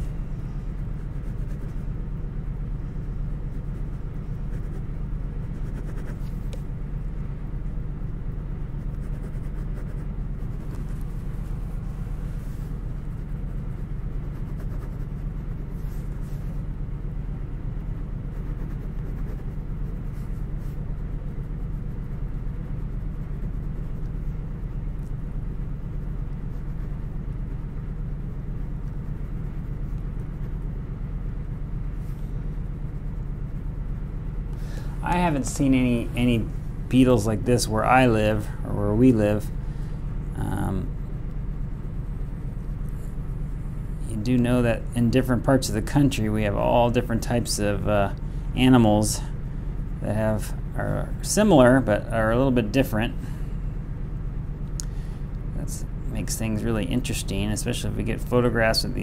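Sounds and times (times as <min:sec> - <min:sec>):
steady low hum: 0:00.0 - 0:59.0
pen scratching on chipboard: 0:04.5 - 0:06.4, 0:08.9 - 0:11.0, 0:14.1 - 0:15.2, 0:18.3 - 0:20.6.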